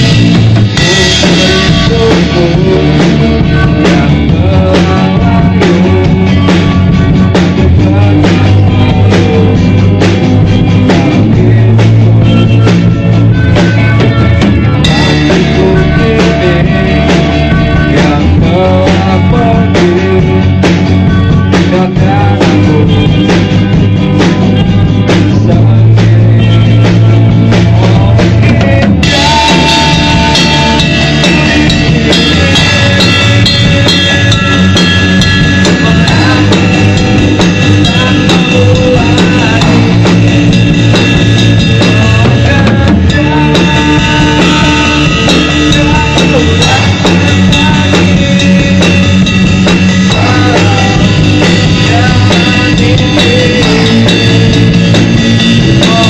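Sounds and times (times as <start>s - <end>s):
electric guitar: 0.0s - 56.0s
pounding drum kit: 0.0s - 56.0s.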